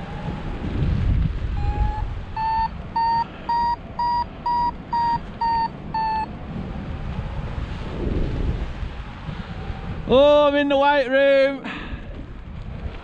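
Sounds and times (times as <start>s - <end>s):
wind on microphone: 0.0s - 10.8s, 11.7s - 13.0s
variometer beeping: 1.6s - 6.3s.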